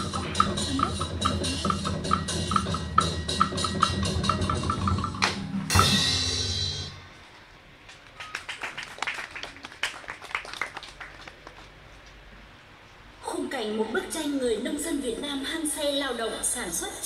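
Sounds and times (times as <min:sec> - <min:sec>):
drum-led percussion music: 0:00.0 - 0:07.3
cymbal crash ringing out: 0:01.8 - 0:07.4
scattered clapping: 0:07.9 - 0:11.8.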